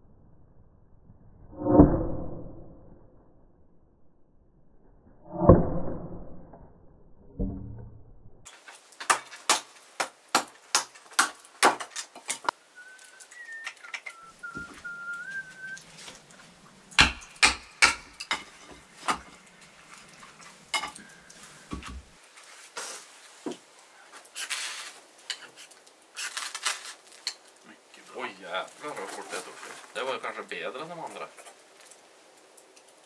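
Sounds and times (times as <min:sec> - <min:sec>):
short wavering whistle: 0:12.6 - 0:15.9
sharp knocks: 0:16.9 - 0:19.4.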